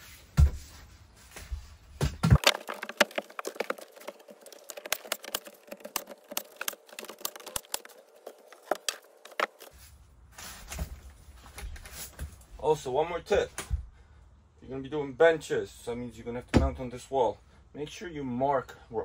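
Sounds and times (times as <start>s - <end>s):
wooden boards clicking and knocking: 2.1s - 9.7s.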